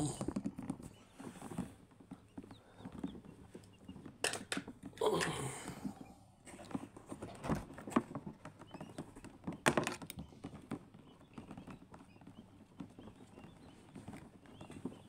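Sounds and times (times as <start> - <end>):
chicks tapping on floor mat: 0.0 - 5.0, 5.7 - 15.0.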